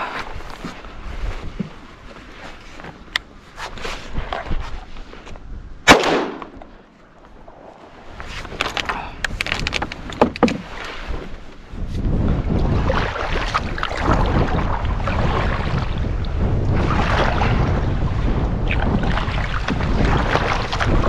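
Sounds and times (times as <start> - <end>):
wind buffeting microphone: 4.0 - 21.0
shotgun shot with echo: 5.9 - 6.6.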